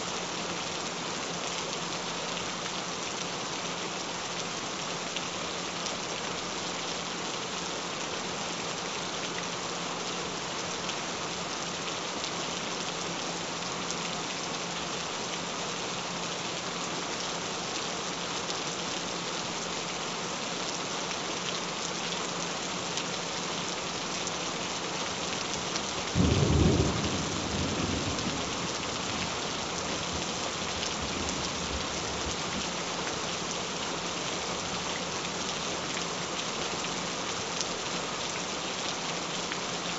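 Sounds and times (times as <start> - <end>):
steady rain falling: 0.0 - 39.9
thunder clap rumbling: 26.2 - 29.3.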